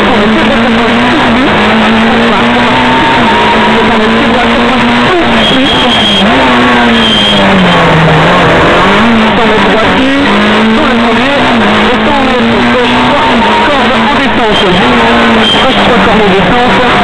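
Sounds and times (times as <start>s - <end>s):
rally car engine revving: 0.0s - 17.0s
short high squeals: 5.3s - 8.2s, 14.4s - 15.9s.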